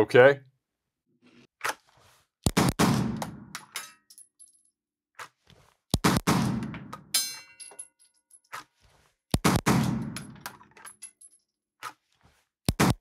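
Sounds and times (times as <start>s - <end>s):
pistol shots echoing indoors: 2.5s - 3.6s, 6.0s - 6.9s, 9.4s - 10.4s
metallic clink: 7.1s - 8.5s.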